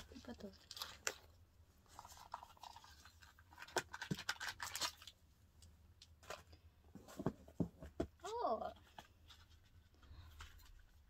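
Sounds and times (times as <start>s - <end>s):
packaging rustling: 0.0s - 5.2s.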